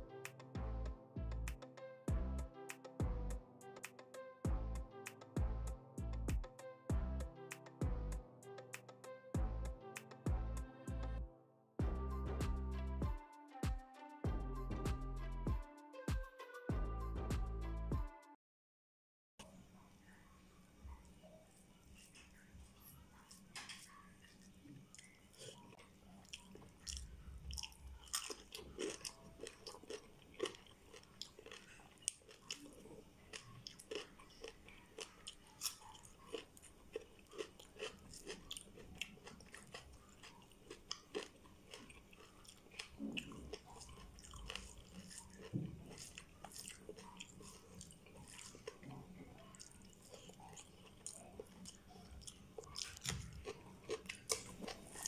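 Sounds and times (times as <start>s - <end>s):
person chewing with wet mouth clicks: 24.9s - 55.0s.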